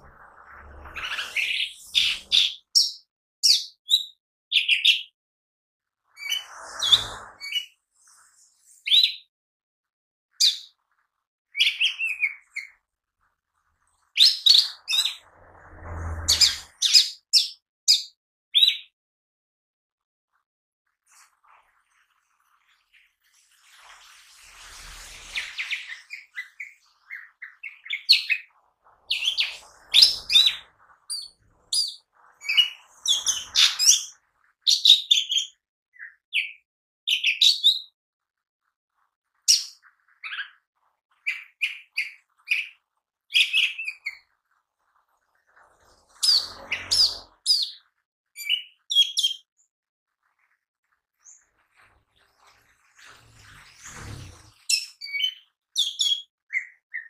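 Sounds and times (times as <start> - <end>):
bird chirping and whistling: 0.6 - 5.1, 6.2 - 7.8, 8.8 - 9.3, 10.4 - 10.7, 11.6 - 12.7, 14.2 - 15.2, 16.3 - 18.9, 25.3 - 28.5, 29.1 - 34.1, 34.7 - 37.9, 43.3 - 44.2, 46.2 - 47.8, 48.4 - 49.5, 54.7 - 57.0.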